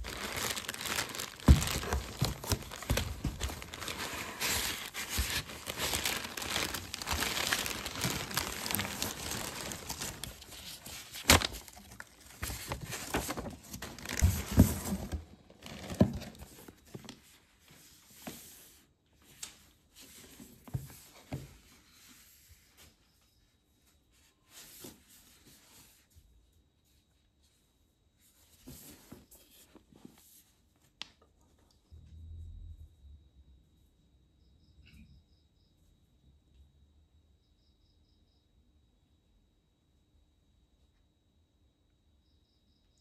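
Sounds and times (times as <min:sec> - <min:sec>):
paper and box handling: 0:00.0 - 0:17.2
plastic wrap crinkling: 0:00.0 - 0:17.2.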